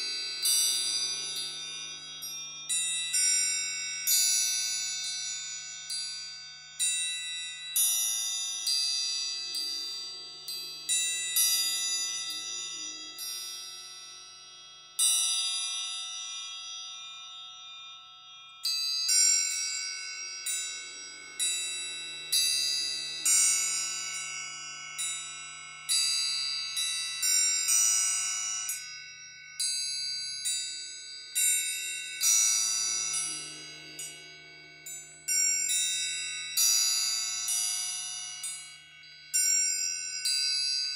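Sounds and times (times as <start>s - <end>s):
suspended cymbal washy ring: 0.0s - 40.9s
triangles ringing: 0.0s - 40.9s.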